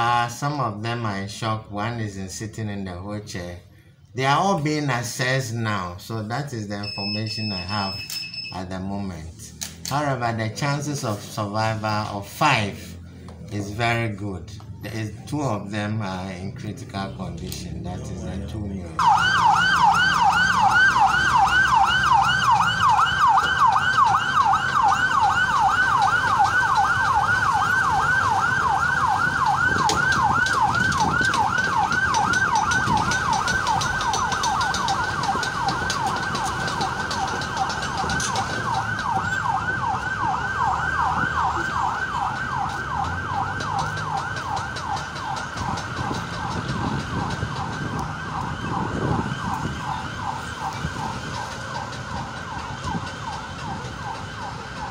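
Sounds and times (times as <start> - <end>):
road traffic rumble: 0.0 - 54.9
siren yelping: 6.7 - 8.9, 19.0 - 54.9.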